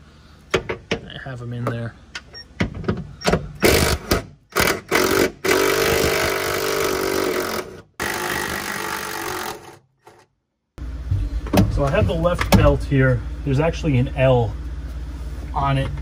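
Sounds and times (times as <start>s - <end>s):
handheld power tool running: 3.6s - 10.2s.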